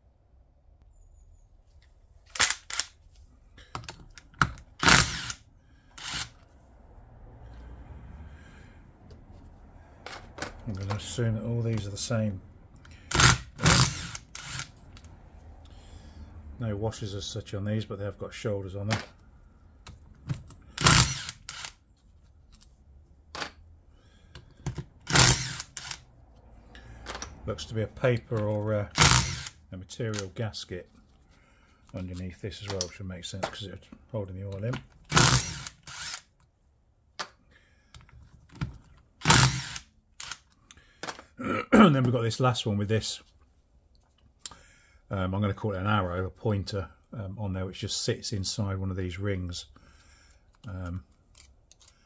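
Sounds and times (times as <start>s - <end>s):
clicks of bolts and tool: 3.6s - 5.0s, 23.3s - 23.6s, 26.7s - 27.4s, 37.2s - 39.5s, 50.5s - 52.0s
power driver spinning bolts: 3.8s - 5.4s, 12.8s - 15.1s, 20.4s - 21.8s, 24.5s - 26.0s, 28.0s - 30.3s, 34.6s - 36.2s, 39.2s - 41.2s.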